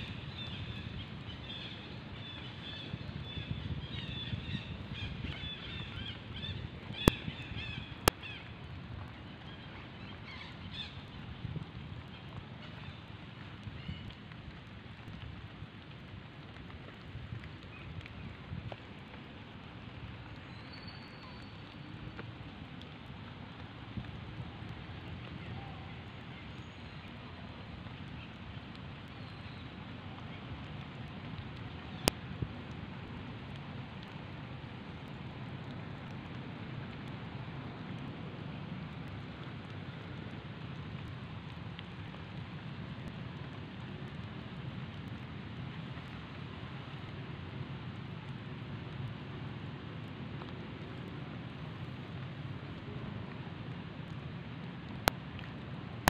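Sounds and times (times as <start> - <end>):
outdoor background hiss: 0.0 - 56.0.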